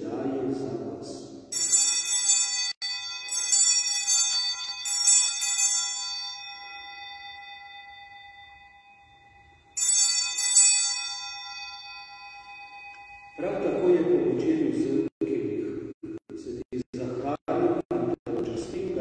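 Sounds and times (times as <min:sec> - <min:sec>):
altar bells ringing: 0:01.5 - 0:15.1.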